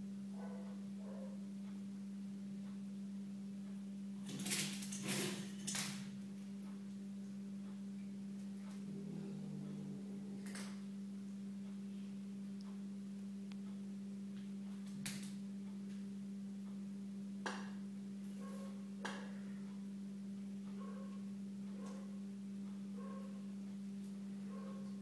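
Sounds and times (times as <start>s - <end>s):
low hum: 5.5s - 22.4s.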